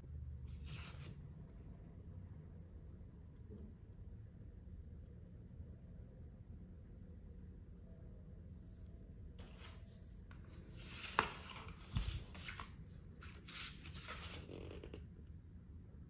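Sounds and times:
paper rustling and sliding: 0.5s - 1.2s, 9.4s - 15.0s.

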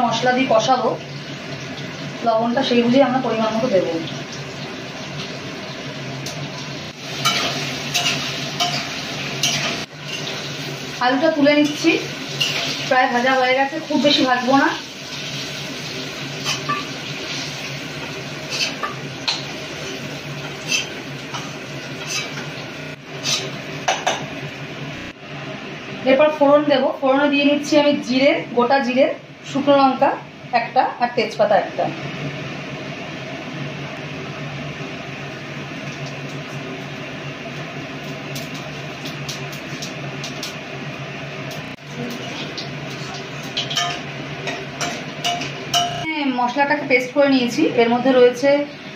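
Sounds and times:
oil frying hiss: 0.0s - 25.4s, 31.1s - 48.9s
metal spatula clinking on metal pan: 43.6s - 46.0s.

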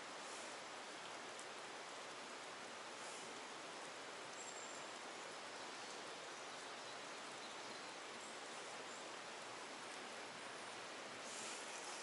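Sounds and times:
outdoor hiss by water: 0.0s - 12.0s.

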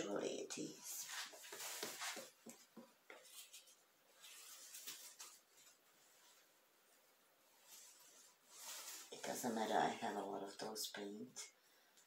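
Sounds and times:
soft scraping rustles: 0.8s - 10.0s.

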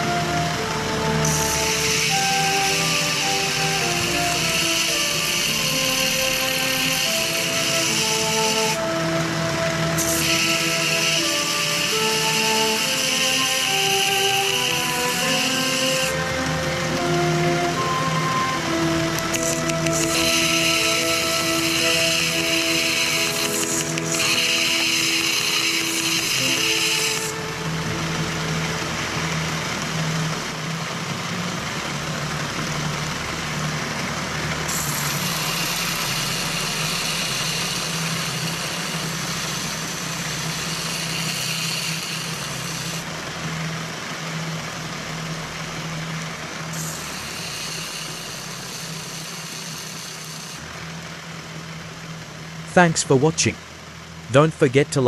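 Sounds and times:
belt sander motor humming: 0.0s - 55.0s
metal ground on sanding belt: 1.2s - 9.0s, 9.9s - 16.2s, 19.2s - 27.4s, 34.7s - 43.0s, 46.8s - 50.6s.

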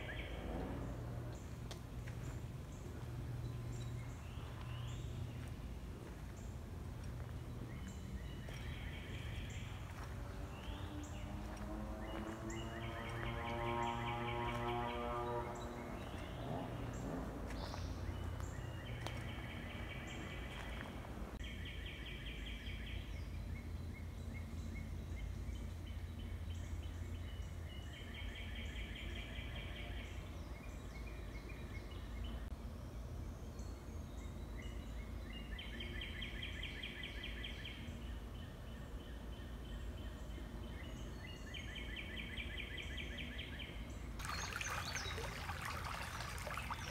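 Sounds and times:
low outdoor rumble: 0.0s - 21.6s, 37.8s - 46.9s.

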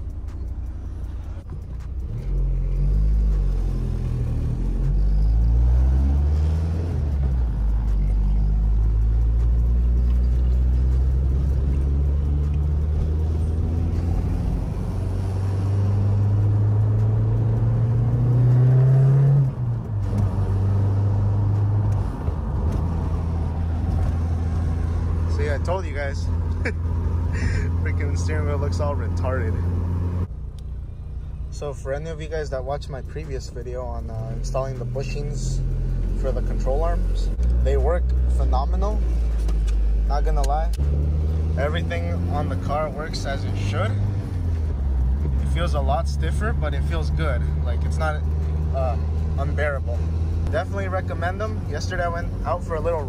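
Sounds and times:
car engine accelerating: 0.0s - 53.0s.

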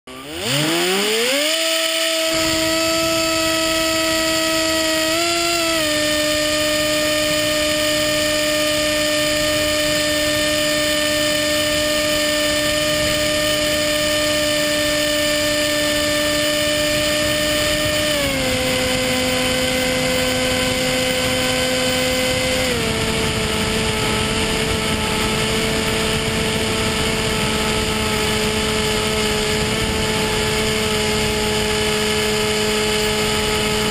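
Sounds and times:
electric rc plane motor whining: 0.1s - 33.9s
wind on microphone: 0.2s - 33.9s.

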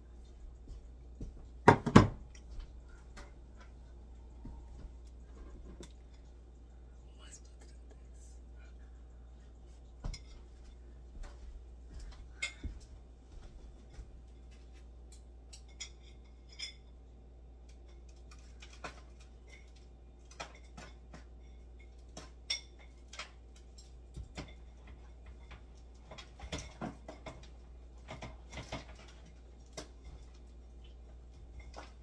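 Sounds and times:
low steady hum: 0.0s - 32.0s
cutlery clinking on a plate: 14.4s - 17.0s, 17.7s - 30.4s.

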